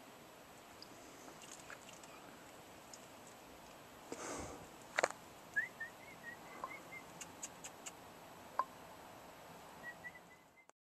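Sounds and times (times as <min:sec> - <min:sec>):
bird chirping: 0:05.5 - 0:08.0, 0:09.8 - 0:10.7.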